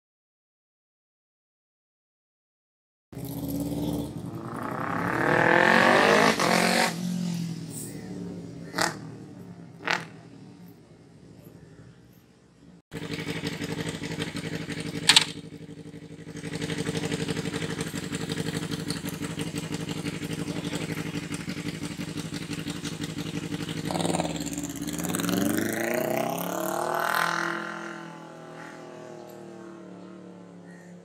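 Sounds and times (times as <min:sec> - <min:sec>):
motorcycle engine idling and revving: 0:03.2 - 0:31.0
sharp crack: 0:14.9 - 0:15.5.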